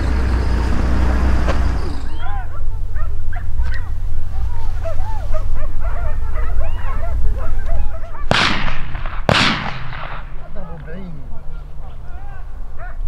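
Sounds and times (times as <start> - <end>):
hounds yelping: 1.6 - 9.0, 10.0 - 13.0.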